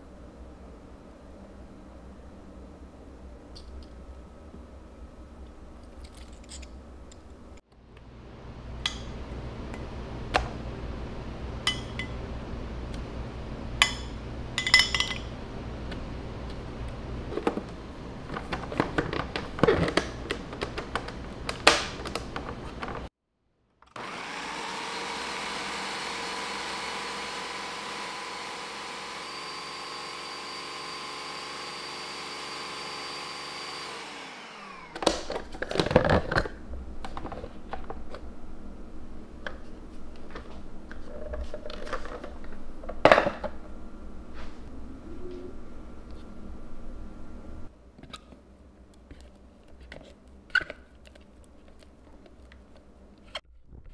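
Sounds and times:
blender motor whining: 0:23.9 - 0:35.2.

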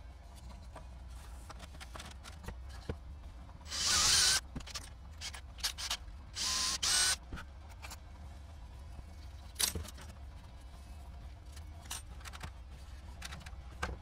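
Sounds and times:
small tool hissing and whirring: 0:03.7 - 0:07.2.

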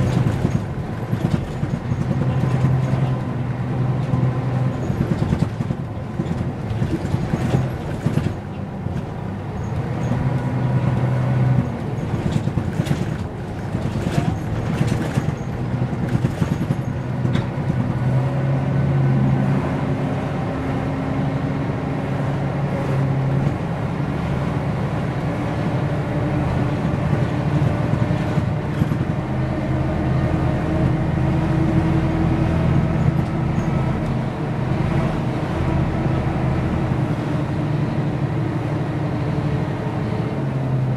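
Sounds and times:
rattles and knocks: 0:00.0 - 0:03.3, 0:04.0 - 0:09.2, 0:11.5 - 0:18.0
bus diesel engine droning: 0:00.0 - 0:40.9.

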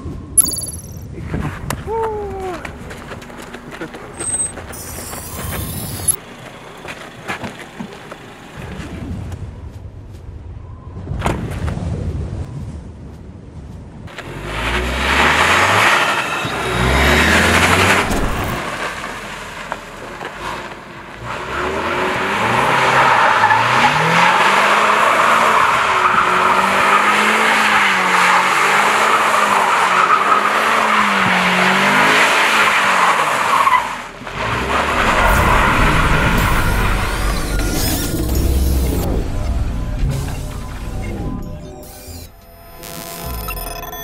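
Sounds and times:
tyres skidding: 0:02.5 - 0:09.4, 0:14.1 - 0:41.8
car engine revving: 0:14.1 - 0:41.3.

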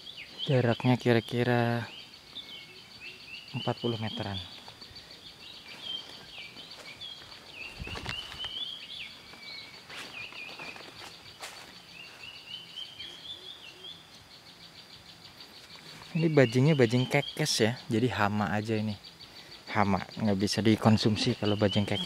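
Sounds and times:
bird chirping: 0:00.0 - 0:22.0
rustling in undergrowth: 0:04.1 - 0:13.8.

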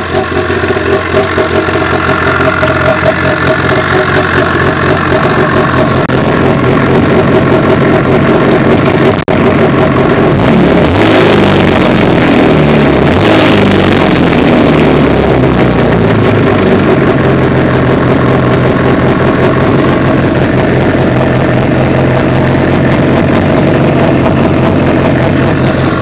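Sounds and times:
snowmobile engine idling: 0:00.0 - 0:26.0.

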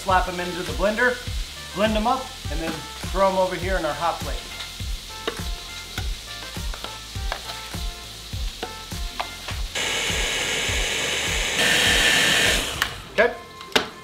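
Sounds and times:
background music with beat: 0:00.0 - 0:14.0
blender running: 0:09.8 - 0:13.2.

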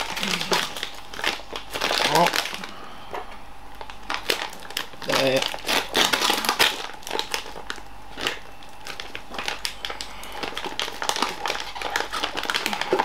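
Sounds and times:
plastic bag crinkling and rustling: 0:00.0 - 0:02.7, 0:03.8 - 0:13.0.

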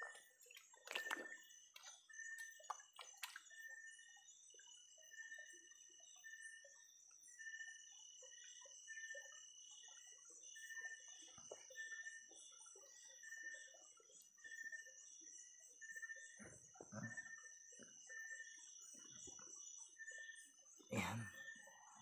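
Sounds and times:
hand splashing shallow water: 0:00.0 - 0:03.5.

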